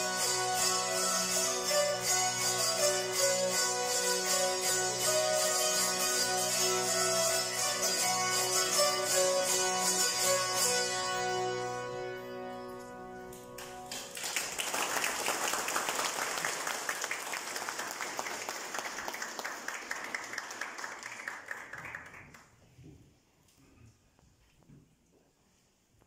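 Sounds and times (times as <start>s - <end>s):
audience applause: 13.6s - 22.6s.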